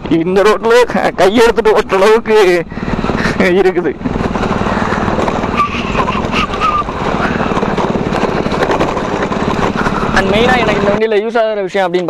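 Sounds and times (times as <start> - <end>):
bike parts rattling: 0.7 - 11.0
wind rushing over microphone: 1.0 - 11.0.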